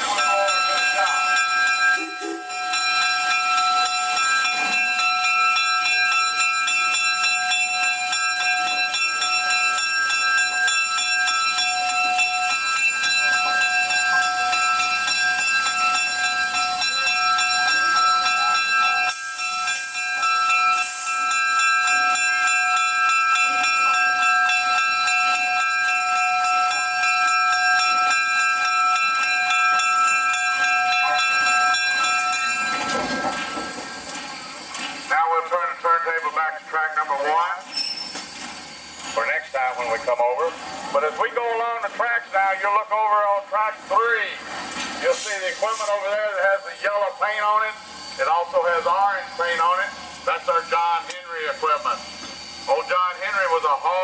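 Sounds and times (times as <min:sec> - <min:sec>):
steam locomotive hissing: 0:00.0 - 0:54.0
rush of steam: 0:11.4 - 0:54.0.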